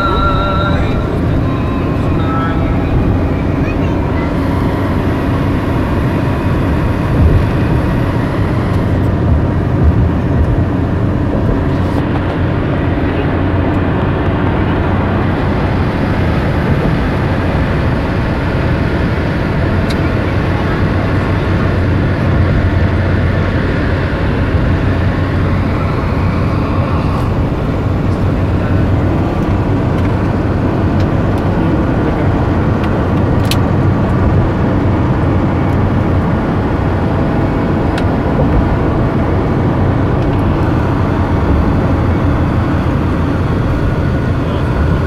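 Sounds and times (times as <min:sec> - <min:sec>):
whine: 0:00.0 - 0:45.0
tyre rumble inside car: 0:02.8 - 0:12.4, 0:25.4 - 0:45.0.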